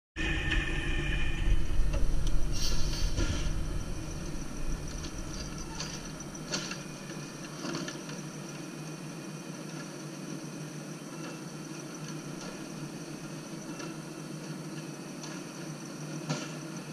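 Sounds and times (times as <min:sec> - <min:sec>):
garbage truck engine rumble: 0:00.2 - 0:08.0
hydraulic arm whine: 0:00.2 - 0:16.9.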